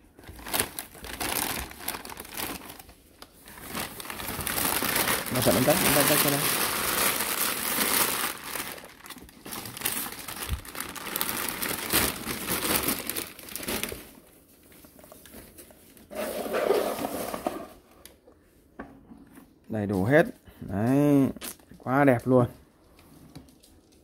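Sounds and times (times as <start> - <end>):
plastic bag crinkling: 0.0 - 17.4.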